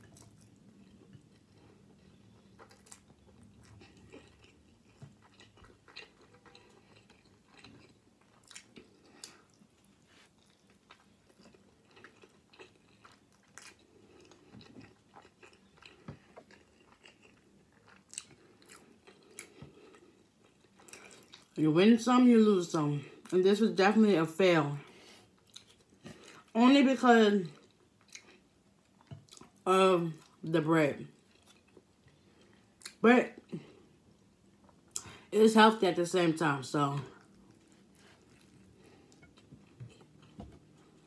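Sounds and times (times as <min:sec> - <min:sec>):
person chewing food: 0:00.0 - 0:21.6, 0:24.9 - 0:26.5, 0:27.5 - 0:29.6, 0:31.1 - 0:35.3, 0:37.1 - 0:41.0.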